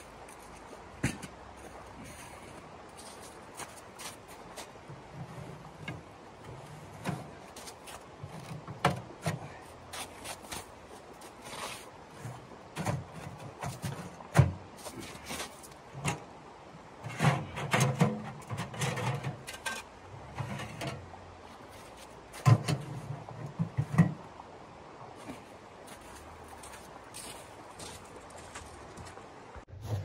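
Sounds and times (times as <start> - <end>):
metal clanks and knocks of stove: 17.0 - 21.0, 22.4 - 24.2.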